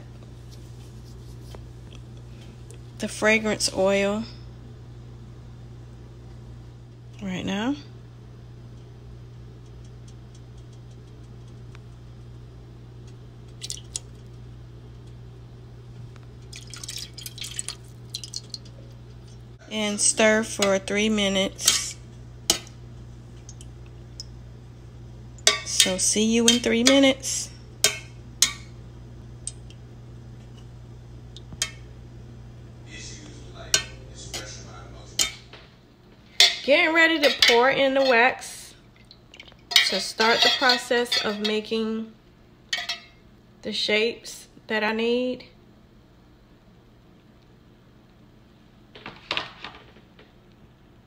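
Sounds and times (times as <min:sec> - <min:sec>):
low hum: 0:00.0 - 0:43.7
oil dripping: 0:13.5 - 0:14.2, 0:16.4 - 0:19.2
utensil scraping pot: 0:18.6 - 0:22.7, 0:39.7 - 0:41.8
utensil clinking metal pot: 0:25.4 - 0:27.1, 0:36.4 - 0:38.3, 0:39.0 - 0:41.7, 0:42.7 - 0:43.2.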